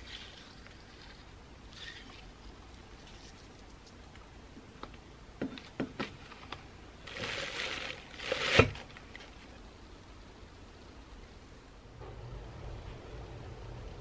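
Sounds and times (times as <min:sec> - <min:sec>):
plastic bag rustling: 0:06.1 - 0:09.4
plastic bag crinkling: 0:07.0 - 0:09.1.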